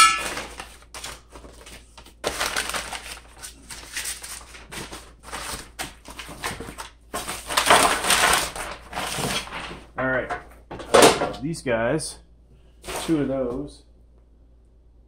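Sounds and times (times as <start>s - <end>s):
packing paper crinkling: 0.0s - 10.0s.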